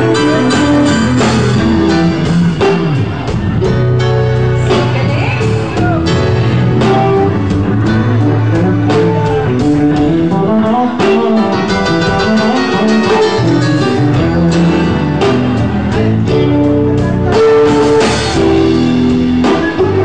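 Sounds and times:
drum beat with sharp hits: 0.0s - 20.0s
electric bass low notes: 0.0s - 20.0s
electric guitar: 0.0s - 20.0s.

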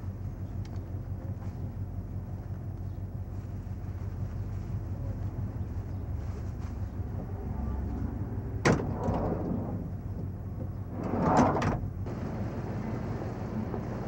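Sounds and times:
low hum: 0.0s - 14.0s
sliding van door rushing open: 8.6s - 10.2s, 10.8s - 12.2s.

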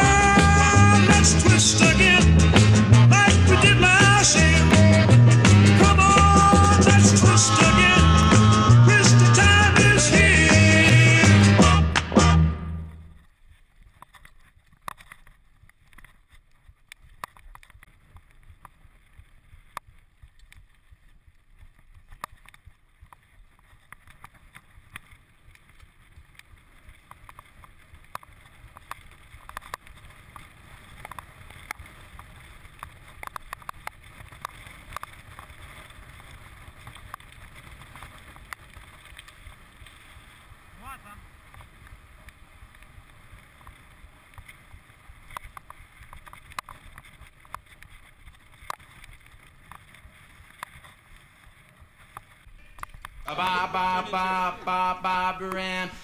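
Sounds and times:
background music: 0.0s - 13.0s, 53.3s - 56.0s
bike clicks and rattles: 13.2s - 40.4s, 41.4s - 53.3s.

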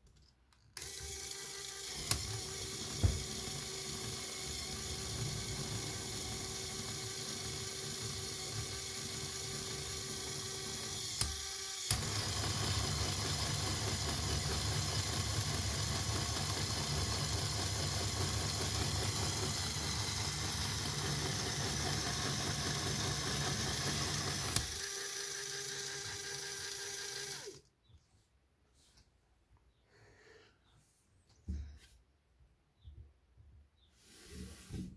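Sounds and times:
electric motor whirring gears: 0.8s - 27.6s.

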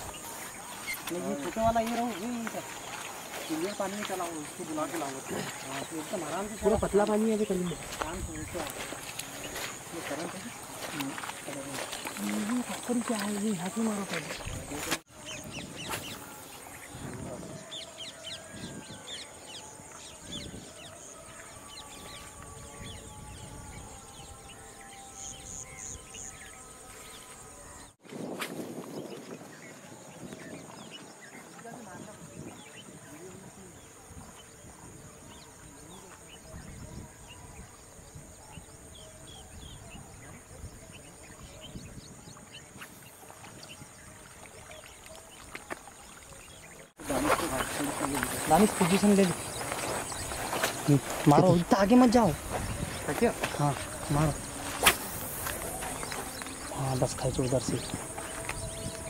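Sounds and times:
birds chirping: 0.0s - 59.0s
insect buzz: 47.0s - 56.9s
lure splashing on water: 52.4s - 56.8s.

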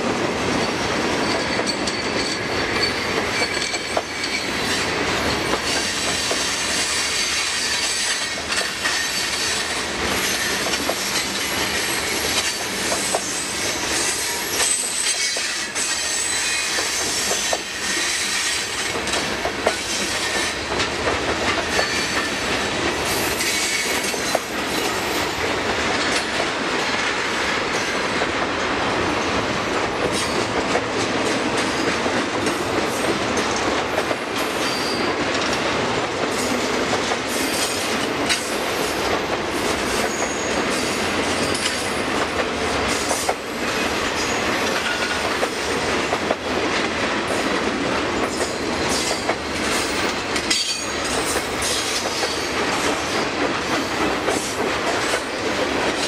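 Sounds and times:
clickety-clack over rail joints: 0.0s - 56.0s
train wheels rumbling on rail: 0.0s - 56.0s
high wheel squeals: 1.2s - 10.7s, 13.0s - 18.8s, 40.1s - 40.9s.

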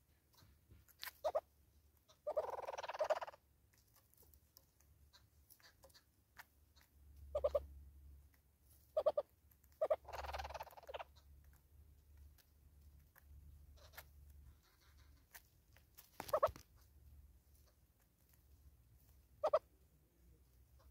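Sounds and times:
hornbills clucking: 2.1s - 3.4s, 7.3s - 7.7s, 9.0s - 11.2s, 19.4s - 19.7s.

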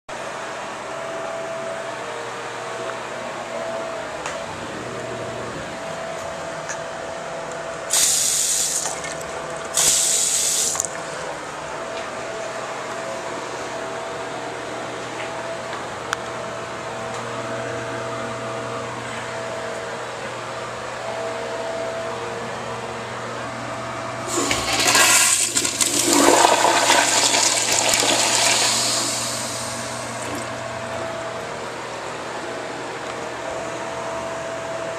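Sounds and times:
toilet flushing: 7.9s - 10.9s, 24.2s - 30.6s
faint steady hum: 10.4s - 34.9s
water rushing into sink: 24.3s - 30.5s.

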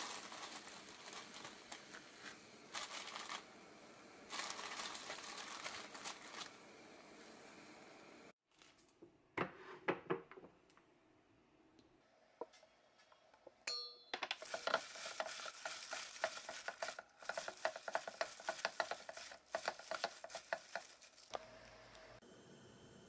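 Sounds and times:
sprouts rustling in metal bowl: 0.0s - 3.5s, 4.3s - 6.6s, 14.4s - 21.4s.

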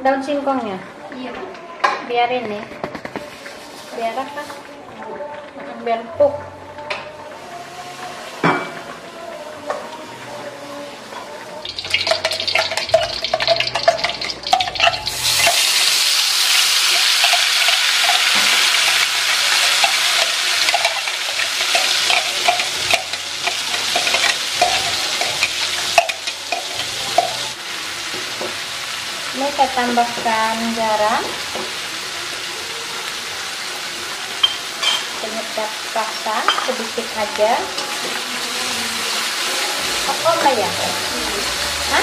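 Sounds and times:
spice paste sizzling in hot oil: 11.6s - 42.0s
spoon scraping and tapping wok: 11.7s - 15.8s, 16.9s - 27.5s.

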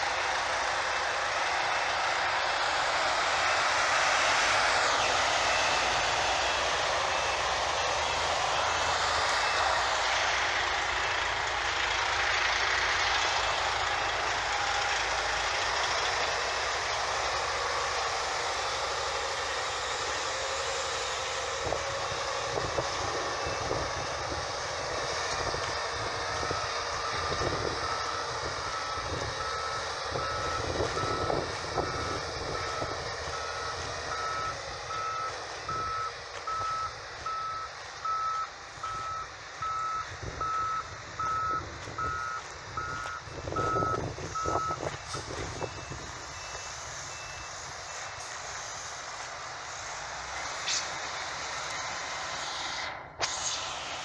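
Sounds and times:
truck diesel engine running: 0.0s - 54.0s
reversing alarm beeping: 4.8s - 9.7s, 26.3s - 48.4s
faint higher-pitched beeping: 26.5s - 44.9s, 45.6s - 48.2s.

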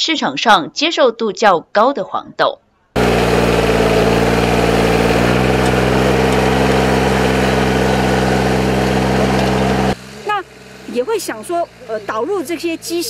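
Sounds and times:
planting machine engine running: 3.0s - 13.0s.

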